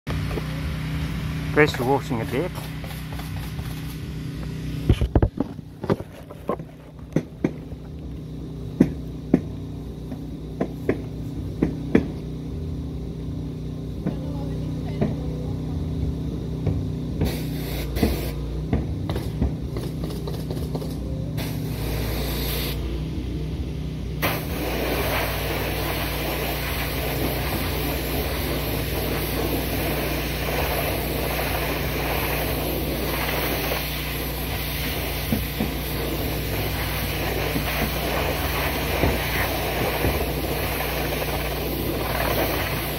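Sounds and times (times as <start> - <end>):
pressure washer humming: 0.1 - 42.9
water spraying onto wooden boards: 1.7 - 4.0, 17.2 - 22.8, 24.2 - 42.9
sharp knocks and clicks: 4.9 - 7.7, 10.1 - 12.2.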